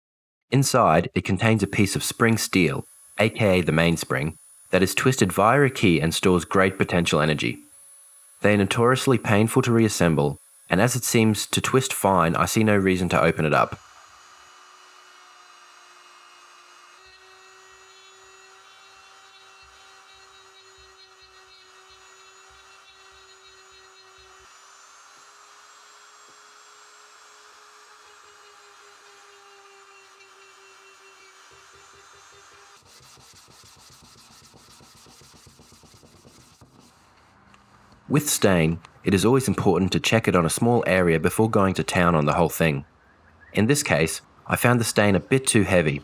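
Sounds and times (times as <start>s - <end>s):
rotary tool whine: 1.7s - 12.0s, 12.6s - 38.1s
cloth rubbing on wooden case: 33.0s - 37.3s.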